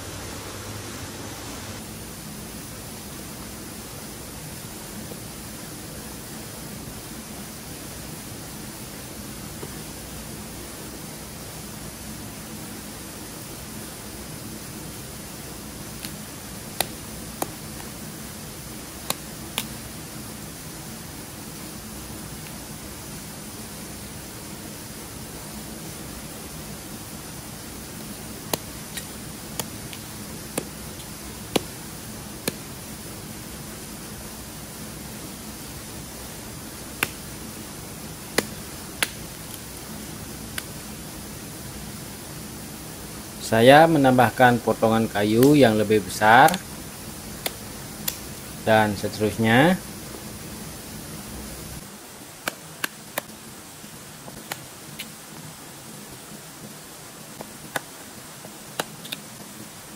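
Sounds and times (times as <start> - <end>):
steady hiss: 0.0 - 59.9
wood fire crackling: 15.0 - 20.2, 25.3 - 34.4, 35.0 - 41.0, 43.4 - 50.5
sharp pops of fire: 36.8 - 37.3, 38.3 - 39.6, 47.4 - 48.3.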